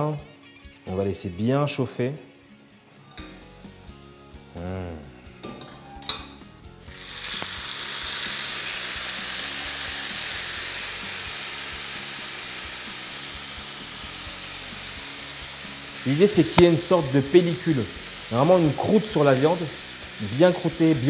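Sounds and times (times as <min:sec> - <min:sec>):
steak sizzling in frying pan: 0:06.8 - 0:21.0.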